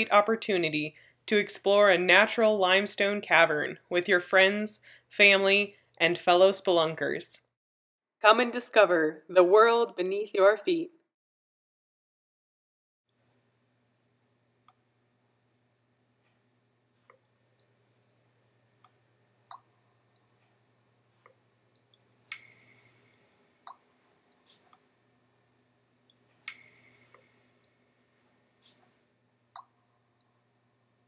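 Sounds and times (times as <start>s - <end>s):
low steady hum: 13.2s - 31.0s.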